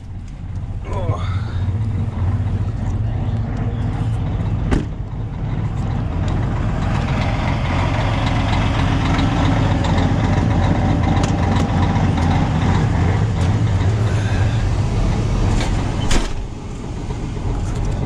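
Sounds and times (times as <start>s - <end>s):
diesel truck engine idling: 0.0s - 18.0s
door shutting with a bang: 4.7s - 5.0s, 15.6s - 16.5s.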